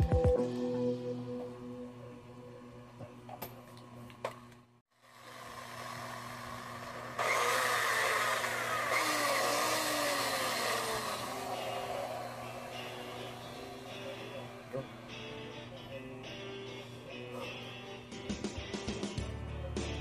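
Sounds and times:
motor whirring: 0:05.2 - 0:14.7.

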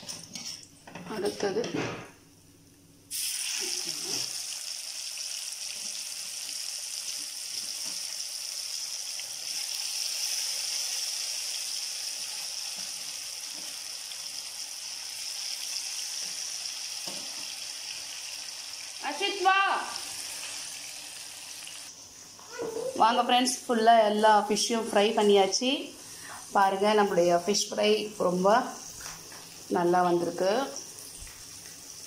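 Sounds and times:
fish deep-frying in hot oil: 0:03.1 - 0:21.9.

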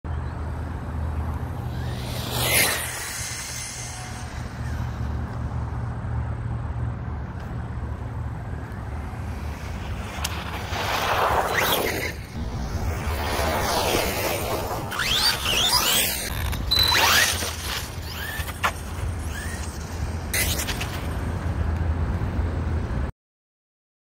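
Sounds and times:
rc truck motor whine: 0:01.1 - 0:06.1, 0:08.5 - 0:21.6
wind rumble on microphone: 0:07.7 - 0:16.5
whoosh with falling pitch: 0:08.6 - 0:21.2.

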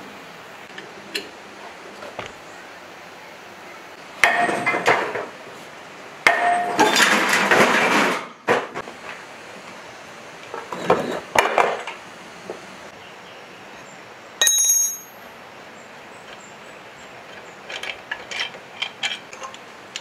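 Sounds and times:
sledgehammer clanging on metal: 0:04.2 - 0:05.2, 0:06.3 - 0:08.3
metal clattering: 0:06.3 - 0:08.8.

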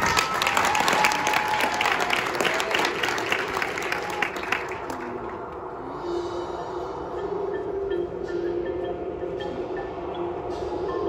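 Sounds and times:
shouts and cheers: 0:00.0 - 0:04.9
audience applauding: 0:00.0 - 0:05.6.

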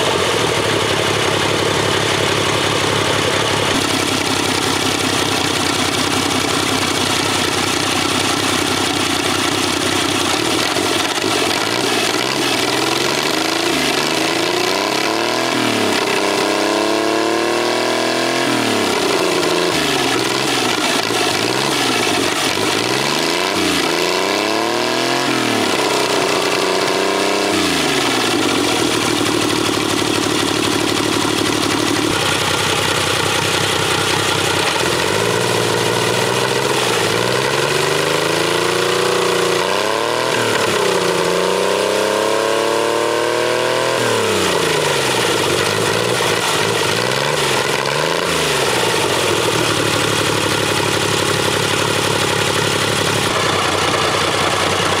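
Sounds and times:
engine revving and idling: 0:00.0 - 0:55.0.

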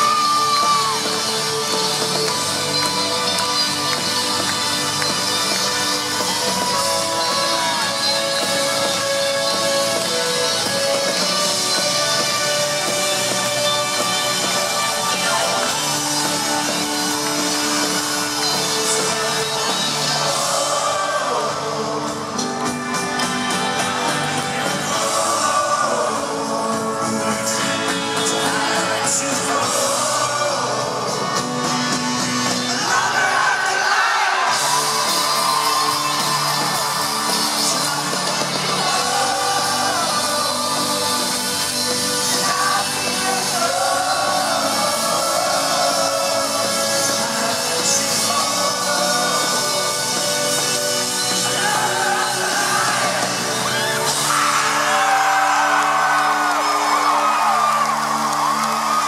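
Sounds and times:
crowd shouts and whoops: 0:00.0 - 0:26.2, 0:32.5 - 0:59.0
live folk-rock band playing: 0:00.0 - 0:33.2, 0:34.5 - 0:59.0
person singing: 0:05.1 - 0:23.0, 0:24.0 - 0:31.7, 0:36.4 - 0:57.6.

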